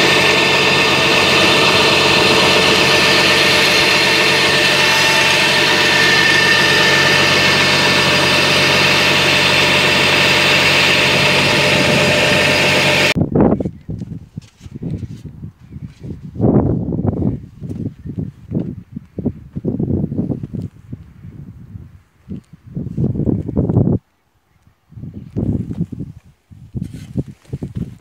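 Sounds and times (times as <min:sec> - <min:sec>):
tractor engine running: 0:00.0 - 0:13.2.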